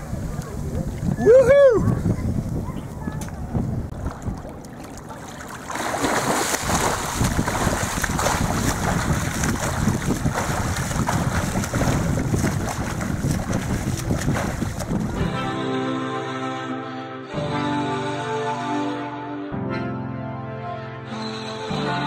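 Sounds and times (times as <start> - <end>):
swimmer splashing: 3.9 - 15.4.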